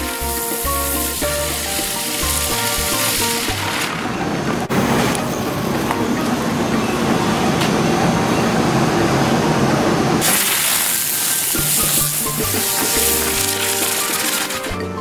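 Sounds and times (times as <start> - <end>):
firework spraying sparks hiss: 0.0 - 3.6, 10.2 - 14.6.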